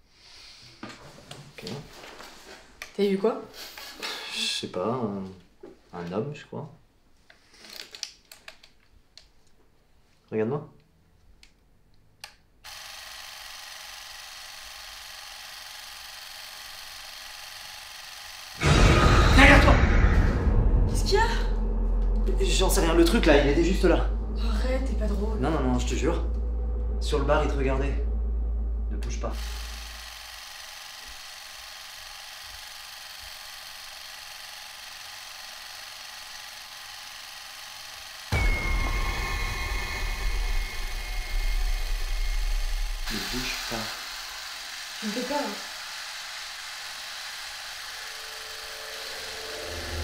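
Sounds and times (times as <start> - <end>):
film camera whirring: 12.6 - 18.6, 29.4 - 38.4, 40.6 - 50.0
even hiss: 38.3 - 44.2.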